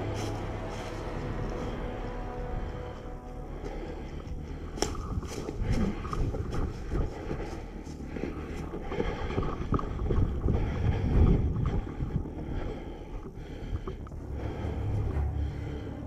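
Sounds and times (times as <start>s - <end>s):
wind buffeting microphone: 4.8s - 15.6s.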